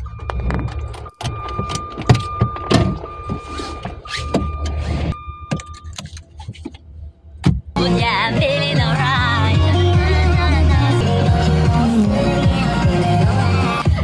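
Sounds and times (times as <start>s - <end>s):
dashboard warning beep: 0.0s - 6.1s
car engine idling: 6.8s - 14.0s.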